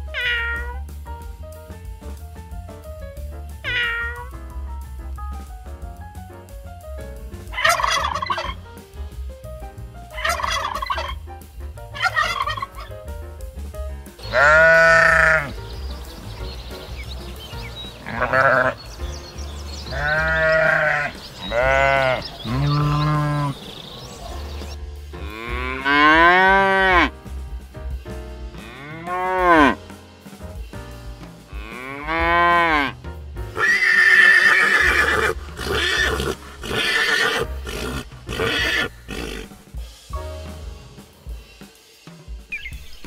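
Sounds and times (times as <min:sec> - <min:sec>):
bleating calls: 0:00.0 - 0:00.8, 0:03.6 - 0:04.3, 0:14.2 - 0:15.8, 0:17.6 - 0:19.1, 0:19.8 - 0:27.1, 0:31.6 - 0:33.0, 0:33.6 - 0:39.6
background music: 0:00.0 - 0:43.0.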